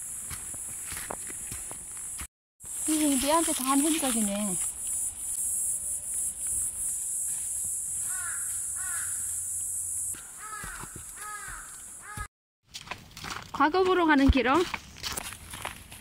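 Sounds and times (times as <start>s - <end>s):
crow cawing: 8.0s - 9.3s, 10.2s - 12.3s.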